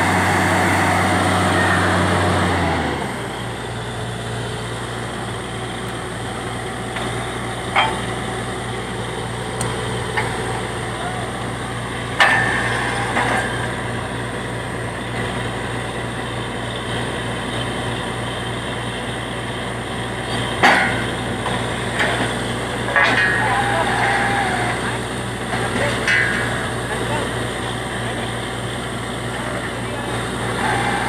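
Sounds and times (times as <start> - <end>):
drilling rig engine drone: 0.0 - 31.0
sharp ringing knocks: 7.7 - 8.3, 20.6 - 21.3, 25.8 - 27.1.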